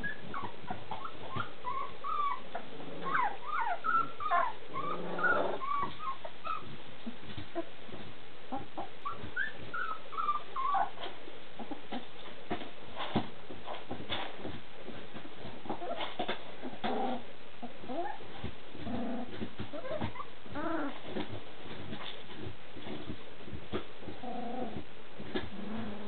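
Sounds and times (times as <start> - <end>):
puppies whimpering and squeaking: 0.0 - 7.7, 8.5 - 12.1, 15.7 - 16.8, 17.6 - 18.4, 19.3 - 21.3.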